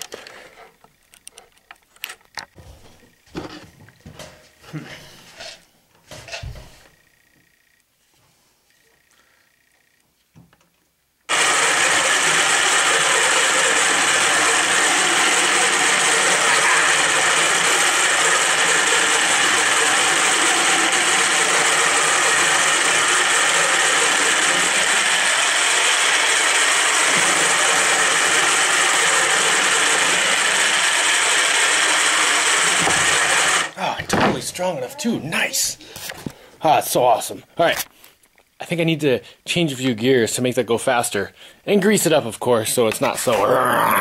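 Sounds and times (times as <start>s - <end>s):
grinding of plastic gears: 11.8s - 33.8s.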